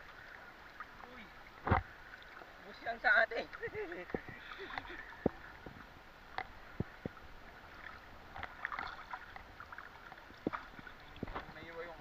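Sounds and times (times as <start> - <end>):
seawater lapping and sloshing: 0.0 - 12.0
light sharp clicks and knocks: 10.4 - 11.6.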